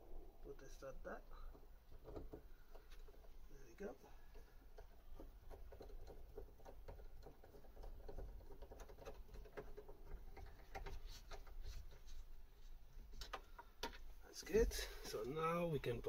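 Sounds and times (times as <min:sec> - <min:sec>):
small clicks and scratches: 0:01.3 - 0:03.6, 0:04.2 - 0:14.1.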